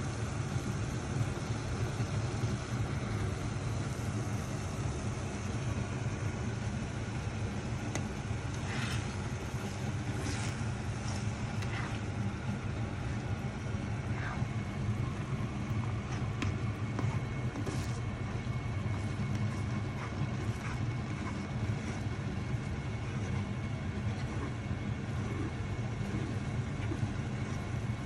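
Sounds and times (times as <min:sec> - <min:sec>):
low hum: 0:00.0 - 0:28.0
spatula scraping: 0:07.9 - 0:28.0.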